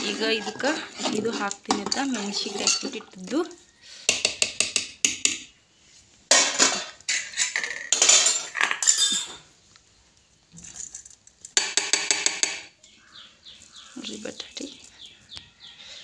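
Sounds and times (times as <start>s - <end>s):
steel ladle clinking on pot: 1.4s - 3.1s.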